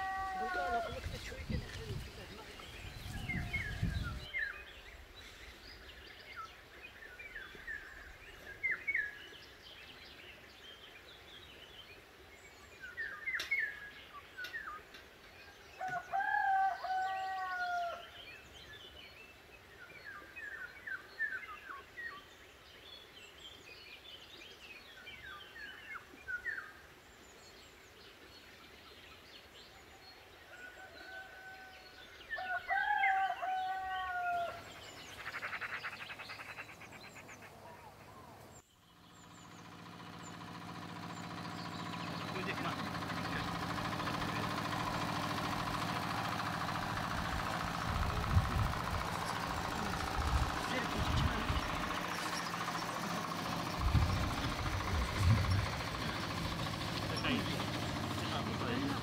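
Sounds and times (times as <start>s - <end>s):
rooster crowing: 0.0s - 1.0s, 2.8s - 4.2s, 15.8s - 18.1s, 30.5s - 34.8s
small birds chirping: 0.0s - 16.2s, 32.0s - 59.0s.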